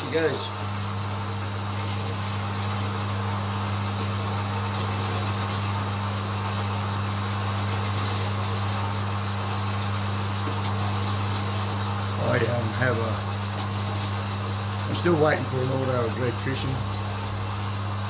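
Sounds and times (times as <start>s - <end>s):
coolant pump hum: 0.0s - 18.0s
bandsaw cutting steel: 10.6s - 17.5s.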